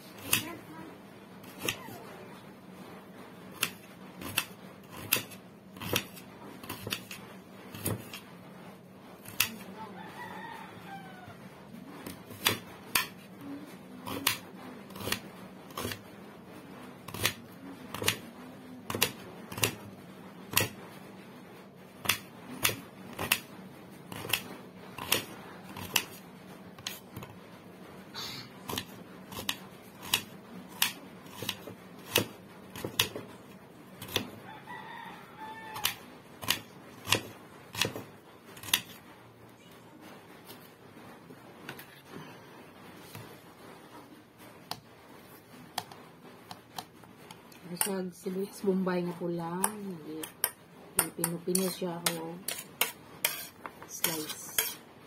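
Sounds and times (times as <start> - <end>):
knife slicing onion: 0.0 - 0.6, 1.4 - 2.0, 3.5 - 8.3, 9.2 - 9.7, 12.0 - 16.1, 17.0 - 20.9, 22.0 - 26.2, 26.8 - 27.4, 28.6 - 34.4, 35.7 - 39.0, 49.0 - 54.8.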